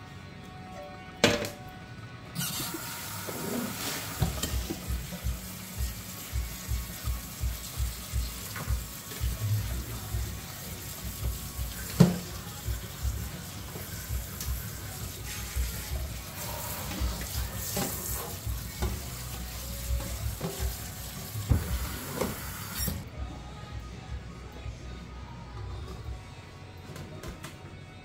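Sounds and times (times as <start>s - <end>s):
sprayer water running: 2.4s - 23.0s
background music with beat: 4.2s - 16.4s.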